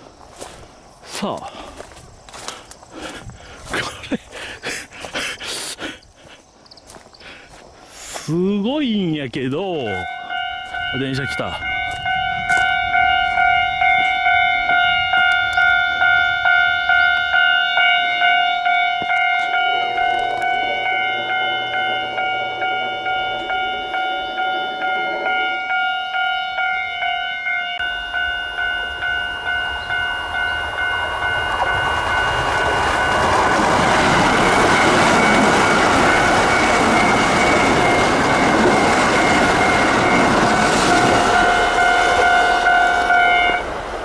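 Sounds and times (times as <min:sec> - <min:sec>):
train passing: 0:07.6 - 0:44.0
level crossing bell ringing: 0:08.8 - 0:43.6.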